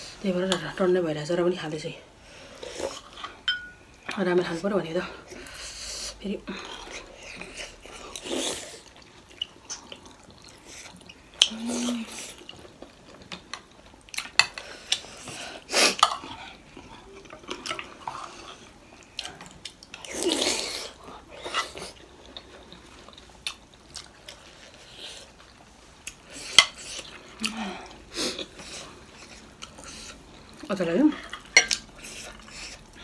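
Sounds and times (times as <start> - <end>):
cutlery clinking on plates: 3.5 - 3.8.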